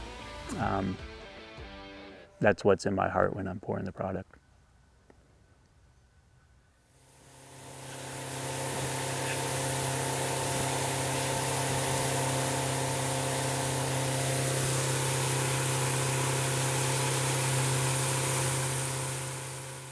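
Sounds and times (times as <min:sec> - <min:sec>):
motorboat engine hum: 0:07.0 - 0:19.9.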